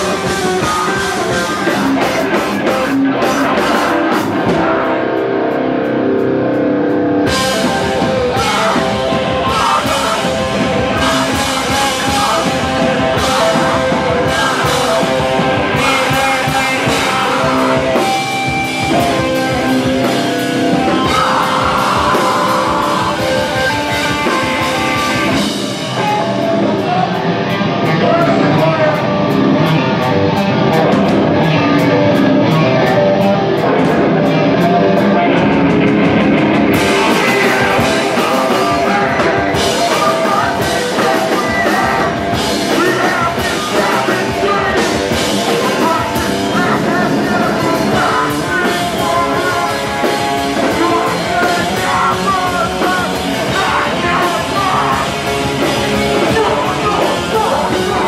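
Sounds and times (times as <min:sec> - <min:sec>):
vocalist singing into microphone: 0:00.0 - 0:06.6, 0:07.2 - 0:35.6, 0:36.6 - 0:58.0
electric guitar: 0:00.0 - 0:58.0
drums with cymbal strokes: 0:07.3 - 0:26.8, 0:35.4 - 0:58.0.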